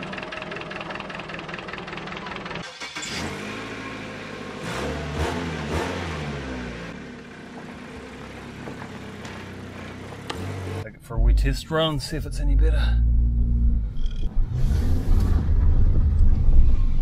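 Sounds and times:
car engine revving: 2.6 - 7.0, 9.9 - 17.0.

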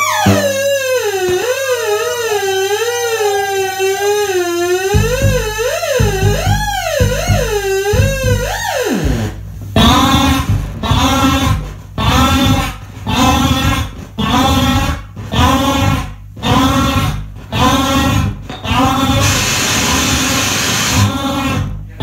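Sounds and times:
wavering gliding electronic tone: 0.0 - 0.9
loud harsh noise: 0.0 - 1.2, 19.2 - 21.2
low irregular pulses: 0.2 - 0.9.

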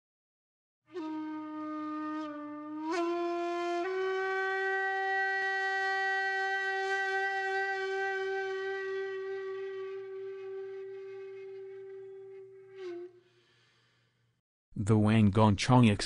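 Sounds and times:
reedy wind instrument note: 0.9 - 13.9.

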